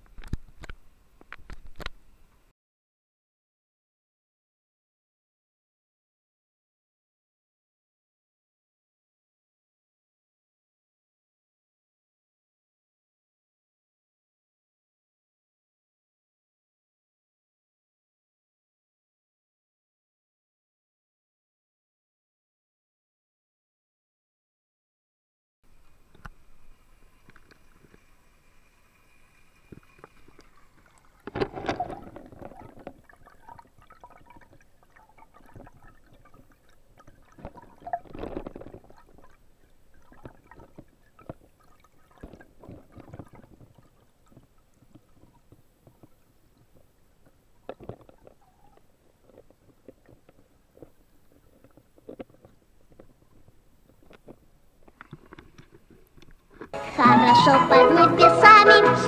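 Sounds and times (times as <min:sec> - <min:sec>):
muffled underwater water sloshing: 0:25.7 - 0:56.8
water splashes: 0:25.7 - 0:56.8.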